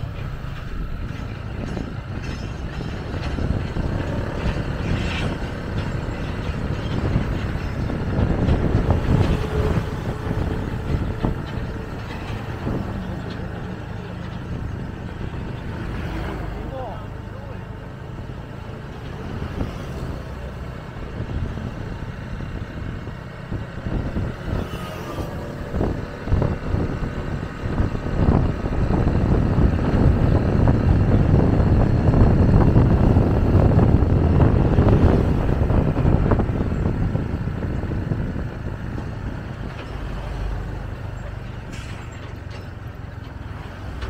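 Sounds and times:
bus engine and tyre rumble: 0:00.0 - 0:44.0.

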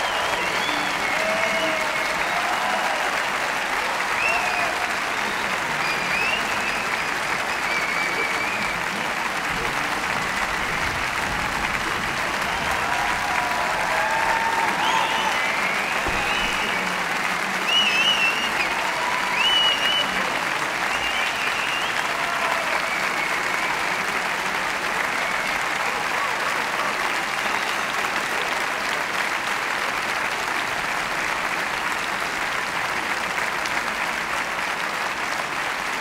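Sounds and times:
crowd applauding: 0:00.0 - 0:36.0
crowd cheering: 0:00.0 - 0:36.0.

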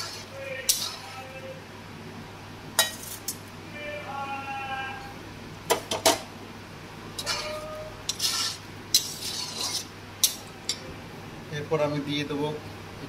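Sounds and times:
spatula scraping curry in pan: 0:00.0 - 0:01.2, 0:07.2 - 0:10.4.

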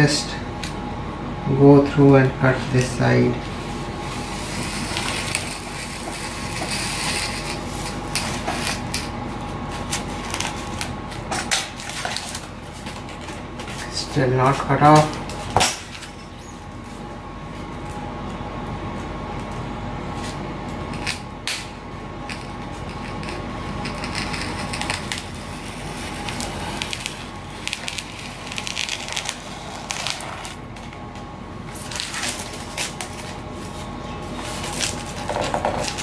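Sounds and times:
steady faint hum: 0:00.0 - 0:36.0
knife cutting film and foam: 0:04.2 - 0:09.0, 0:24.3 - 0:30.6, 0:31.7 - 0:36.0.

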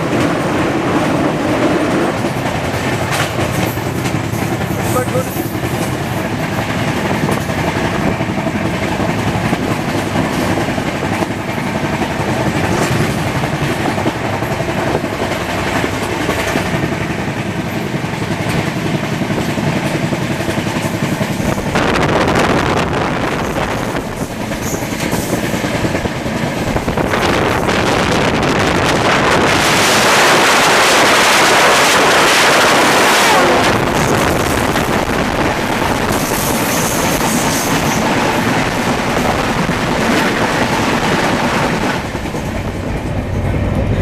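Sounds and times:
train wheels on rails: 0:00.0 - 0:44.0
wind rushing: 0:19.3 - 0:44.0.

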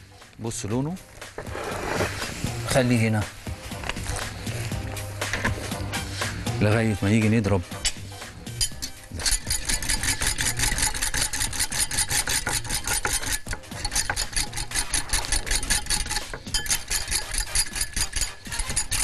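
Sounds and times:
metal whisk scraping a pot: 0:08.6 - 0:19.0.

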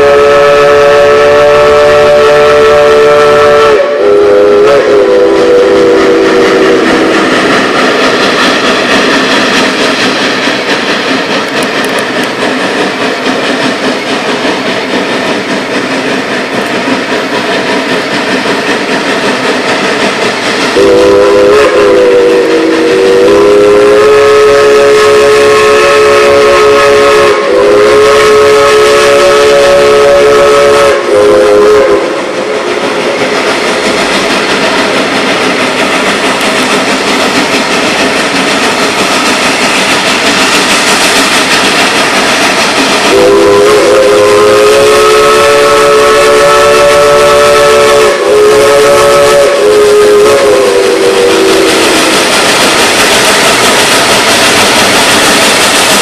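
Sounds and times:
steam whistle blowing: 0:00.0 - 0:08.6, 0:20.6 - 0:33.6, 0:42.9 - 0:53.5
steam locomotive running: 0:00.0 - 0:56.0.

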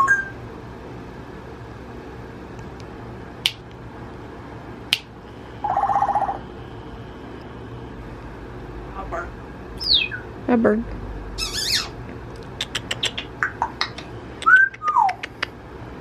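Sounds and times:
parrot buzzing rattle: 0:11.4 - 0:12.0
parrot beak clicks: 0:12.4 - 0:15.6.

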